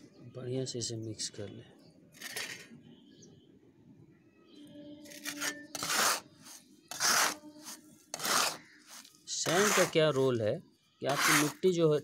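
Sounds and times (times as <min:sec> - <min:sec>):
hands scraping gritty soil on concrete: 0:05.1 - 0:10.4, 0:11.1 - 0:11.8.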